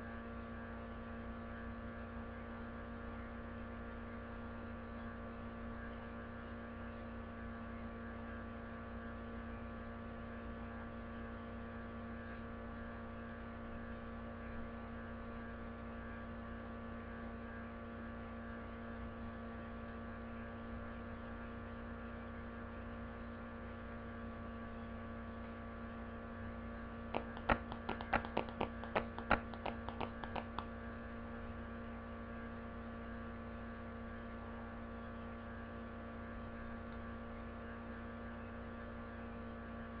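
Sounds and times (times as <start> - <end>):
electrical hum: 27.0 - 30.9
sharp clicks: 27.2 - 30.7.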